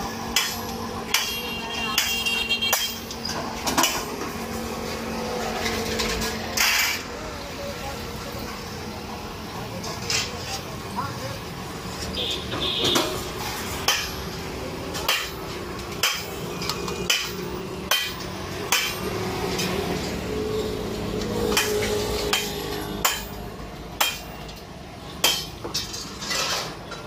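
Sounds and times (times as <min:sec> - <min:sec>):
hammer ringing on metal: 0:21.6 - 0:23.4.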